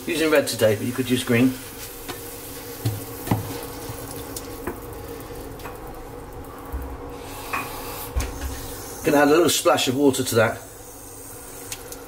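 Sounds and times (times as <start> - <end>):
vegetables sizzling in oil: 0.0 - 9.2
faint steady hum: 0.0 - 12.0.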